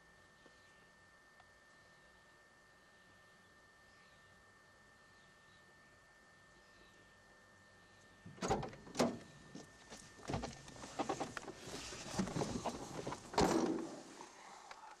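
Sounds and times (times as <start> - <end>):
rustling and handling: 9.6 - 14.3.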